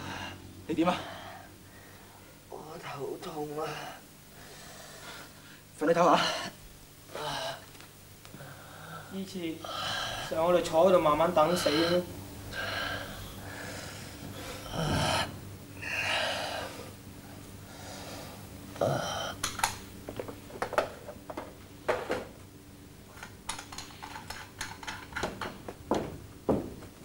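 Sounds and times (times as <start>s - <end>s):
person breathing heavily: 0.0s - 2.4s, 3.7s - 7.7s, 8.3s - 10.4s, 11.5s - 19.4s.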